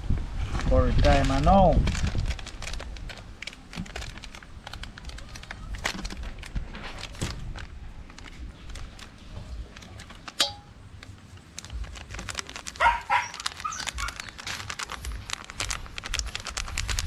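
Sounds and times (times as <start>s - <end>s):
packet crinkling: 0.5s - 17.0s
seasoning shaken into bowl: 12.1s - 17.0s
dog barking: 12.8s - 14.2s.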